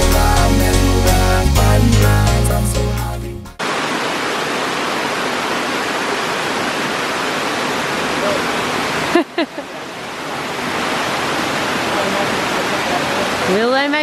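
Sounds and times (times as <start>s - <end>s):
background music: 0.0s - 3.6s
waterfall rushing: 3.6s - 14.0s.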